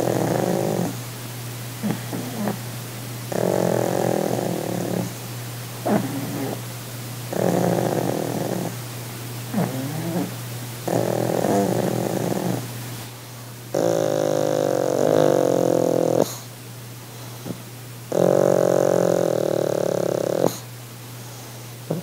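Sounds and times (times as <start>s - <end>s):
dog snoring breathing: 0.0s - 1.0s, 1.8s - 2.7s, 3.3s - 5.2s, 5.8s - 6.7s, 7.3s - 8.8s, 9.5s - 12.7s, 13.7s - 16.5s, 17.1s - 22.0s.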